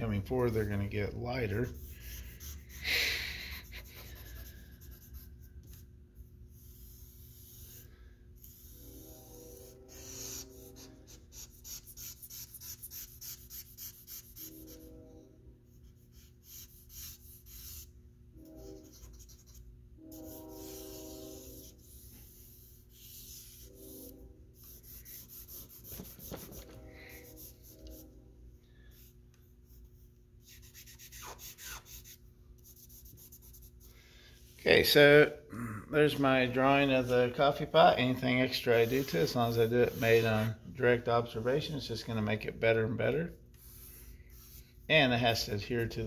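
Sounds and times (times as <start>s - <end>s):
charcoal scratching on paper: 0.1s - 2.8s, 3.5s - 15.0s, 15.8s - 28.1s, 28.9s - 33.9s, 37.0s - 40.6s, 43.5s - 46.0s.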